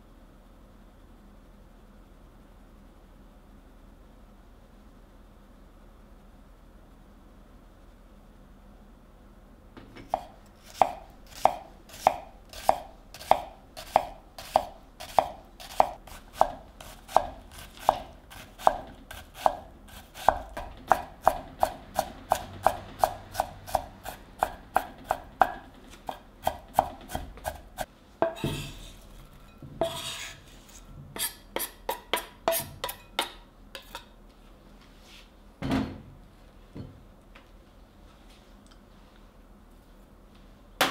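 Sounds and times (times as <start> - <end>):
knife chopping on wooden board: 10.0 - 29.0, 31.2 - 34.0.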